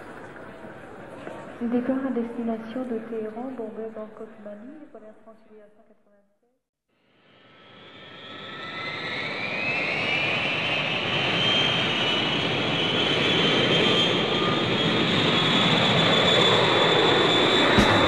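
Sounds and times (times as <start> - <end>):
jet engine whine: 7.1 - 18.0.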